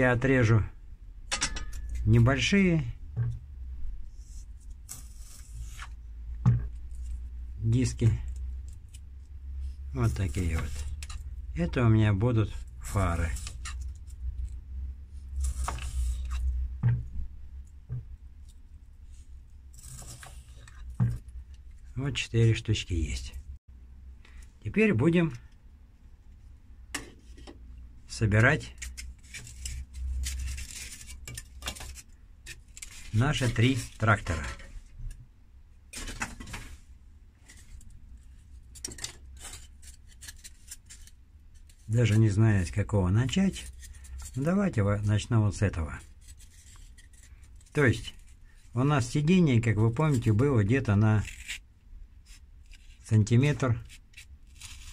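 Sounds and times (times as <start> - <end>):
low steady hum: 0.0 - 54.9
foam parts rustling and tapping: 28.6 - 35.2, 35.9 - 49.2.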